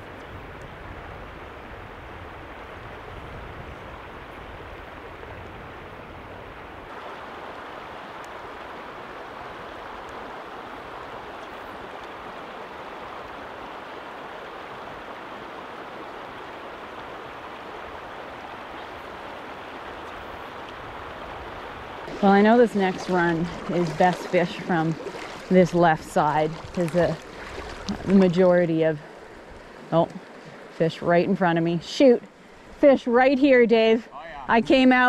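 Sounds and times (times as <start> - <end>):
river running over rocks: 6.9 - 35.0.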